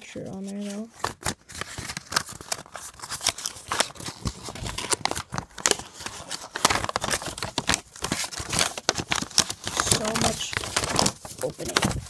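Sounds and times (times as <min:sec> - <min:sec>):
paper and plastic packaging rustling: 0:00.0 - 0:12.0.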